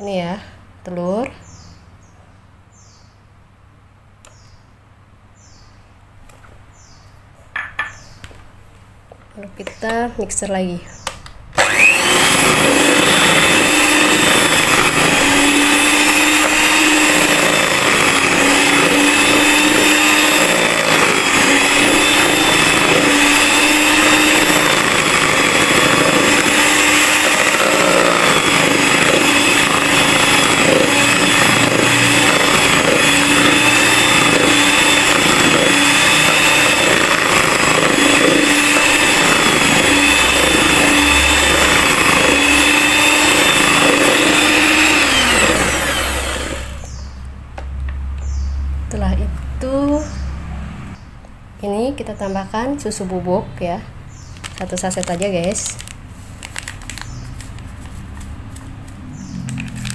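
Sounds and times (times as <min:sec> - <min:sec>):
electric hand mixer whisking: 0:11.6 - 0:47.0.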